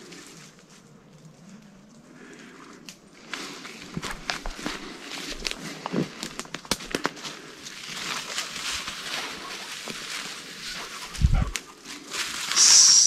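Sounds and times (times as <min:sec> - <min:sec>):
twigs snapping: 0:02.8 - 0:12.6
footsteps through undergrowth: 0:03.1 - 0:13.0.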